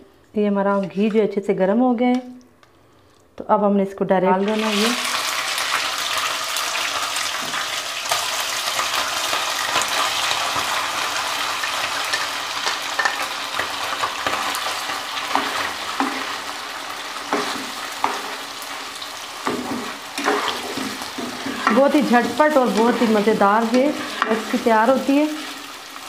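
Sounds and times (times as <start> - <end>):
food sizzling in hot fat: 4.4 - 26.0
spatula scraping wok: 7.4 - 26.0.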